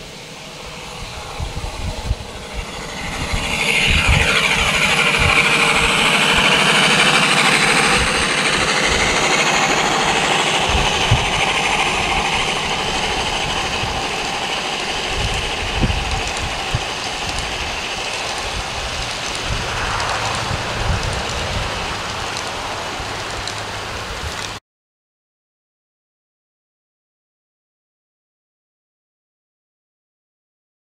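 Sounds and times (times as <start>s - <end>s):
model train rumbling past: 0.0s - 24.6s.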